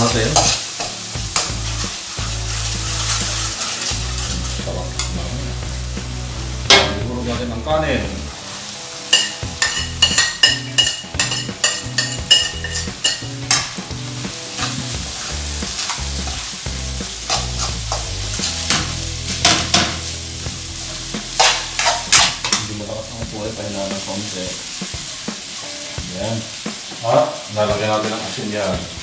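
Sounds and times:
metal spoon scraping wok: 0.0 - 5.3, 9.1 - 13.7, 14.5 - 16.6, 17.2 - 20.1, 20.8 - 22.6
rice frying sizzle: 0.0 - 29.0.

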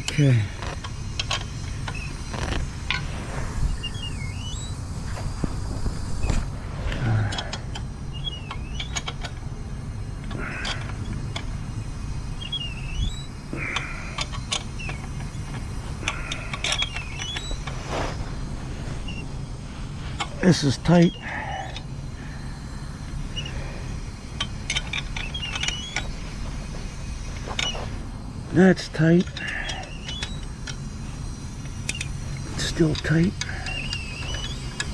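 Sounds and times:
wrench clicking and scraping on metal: 0.0 - 3.0, 7.2 - 9.4, 10.2 - 11.5, 13.6 - 17.8, 24.4 - 26.1, 31.6 - 34.9
steady low rumble: 0.0 - 34.9.

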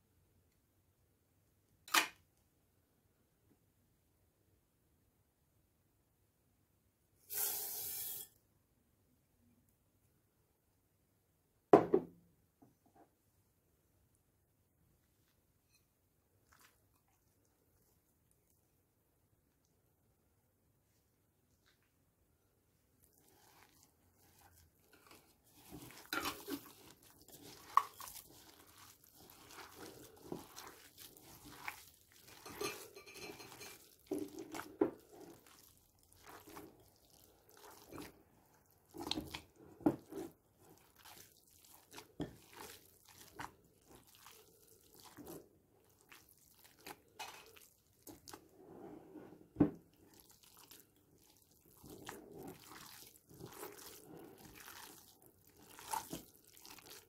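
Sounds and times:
wet squelching of kneaded meat: 16.3 - 18.6, 22.9 - 48.9, 49.8 - 57.0.

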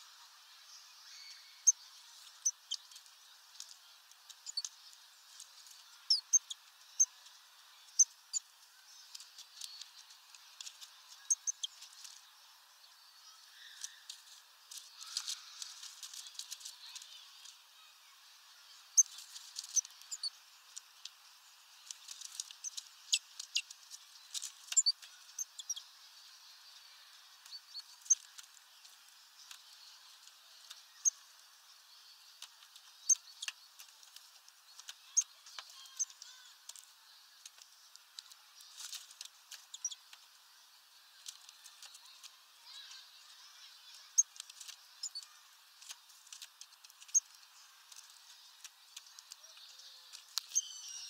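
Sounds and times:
high bird chirps: 2.4 - 3.0, 4.4 - 4.7, 6.1 - 7.1, 11.2 - 11.8, 19.0 - 20.4, 24.7 - 25.9, 39.7 - 40.0, 45.0 - 45.3, 50.4 - 51.0
birds pecking clicks and taps: 21.8 - 25.8, 44.2 - 47.3.

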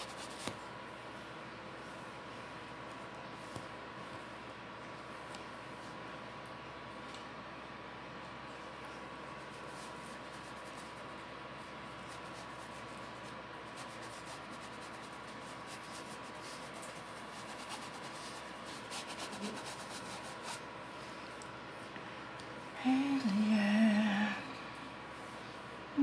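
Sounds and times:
paintbrush rubbing on fabric: 0.0 - 0.6, 9.4 - 20.7
steady background hiss: 0.0 - 26.0.

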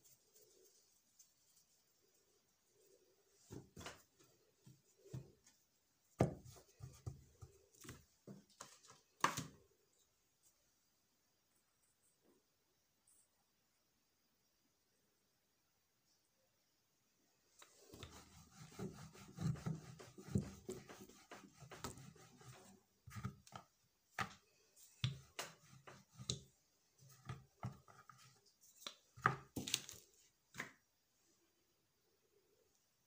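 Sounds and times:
rolling pin rolling dough on wood: 3.4 - 5.6, 6.2 - 8.5, 17.6 - 28.5.

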